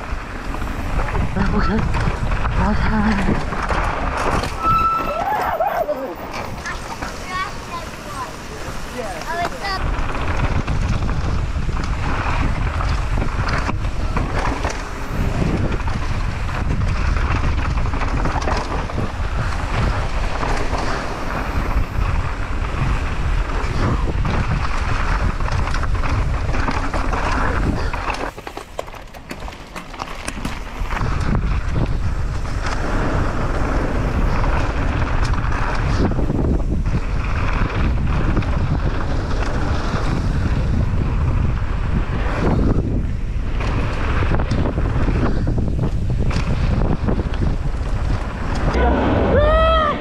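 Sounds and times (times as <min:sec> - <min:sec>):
wind buffeting on microphone: 0:00.0 - 0:28.4, 0:29.0 - 0:50.0
low rumble: 0:46.6 - 0:50.0.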